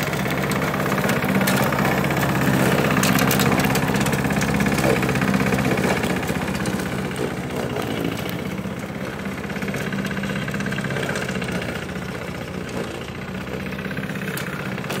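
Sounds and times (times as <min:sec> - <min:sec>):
lawn mower engine running: 0:00.0 - 0:15.0.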